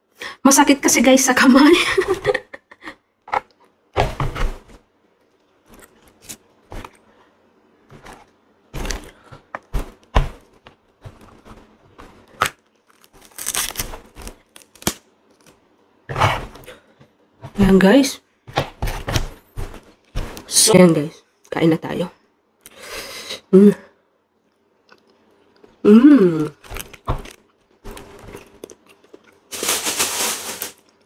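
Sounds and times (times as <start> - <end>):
fruit husk rustling and tearing: 8.8 - 15.6.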